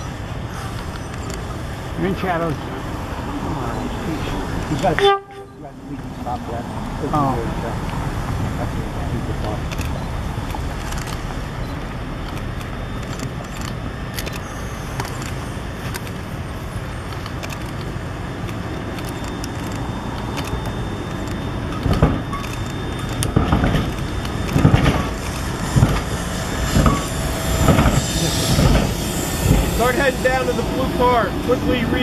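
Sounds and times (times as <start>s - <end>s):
light rail vehicle running: 0.0s - 32.0s
road traffic: 0.0s - 32.0s
heavy thumps: 21.8s - 30.0s.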